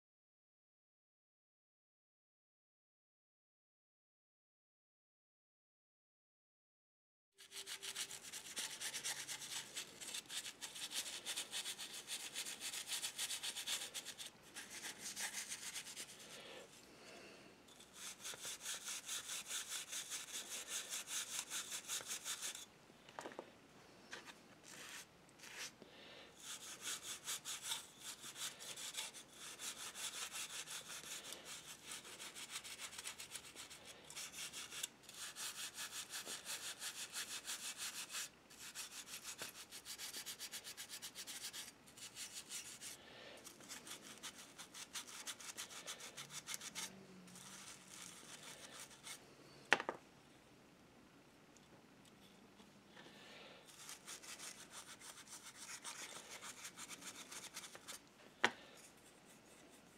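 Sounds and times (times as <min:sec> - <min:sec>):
toothbrush scrubbing metal: 0:07.4 - 0:16.4, 0:17.7 - 0:22.7, 0:26.4 - 0:49.2, 0:53.7 - 0:58.0.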